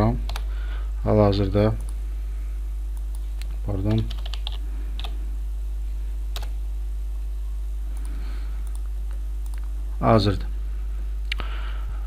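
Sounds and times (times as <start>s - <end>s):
steady low hum: 0.0s - 12.0s
computer mouse clicks: 0.3s - 0.5s, 3.0s - 5.2s, 8.0s - 9.7s.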